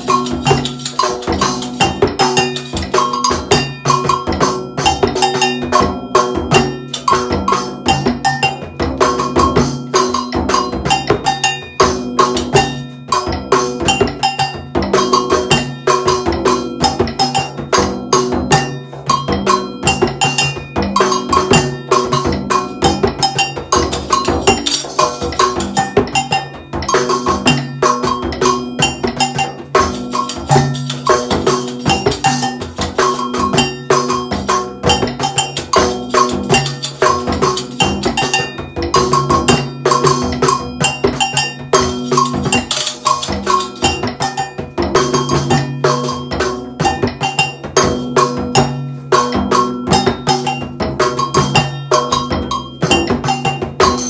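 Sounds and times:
agogo bells struck with stick: 0:00.0 - 0:54.0
frame drum low pattern: 0:00.0 - 0:54.0.

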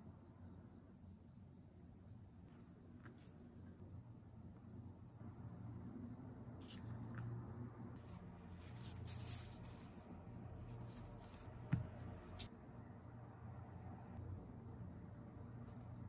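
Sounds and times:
soft handling rustling: 0:08.0 - 0:12.5.

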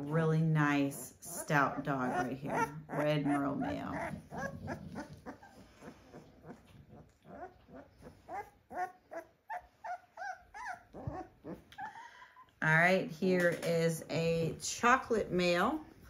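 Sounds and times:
puppies whimpering and squealing: 0:01.0 - 0:12.6.

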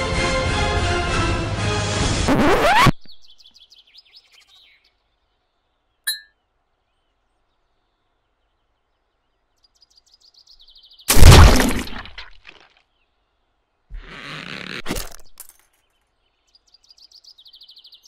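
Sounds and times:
faint birds chirping: 0:02.9 - 0:11.1, 0:12.5 - 0:18.0
boot stomping crushing impact: 0:11.1 - 0:12.3.

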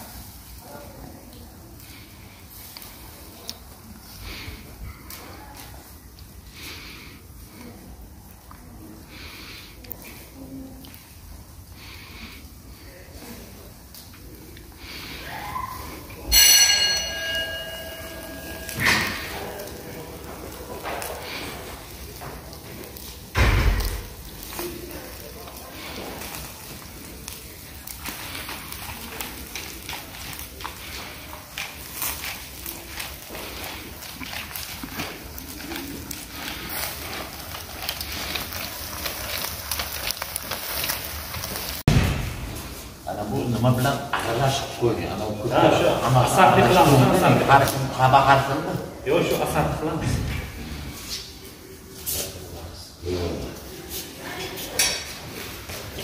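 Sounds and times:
coals crackling: 0:00.0 - 0:56.0
metal skewers clanking: 0:16.3 - 0:19.9
meat sizzling on a grill: 0:17.5 - 0:43.0.

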